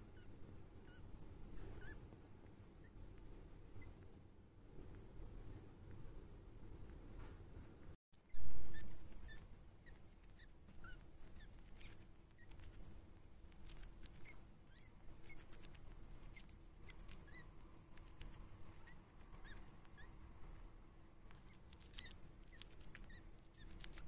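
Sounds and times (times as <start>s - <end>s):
hamster squeaking: 0.0s - 4.1s, 8.2s - 24.0s
hamster chewing clicks: 13.5s - 14.4s, 15.2s - 20.6s, 21.2s - 24.0s.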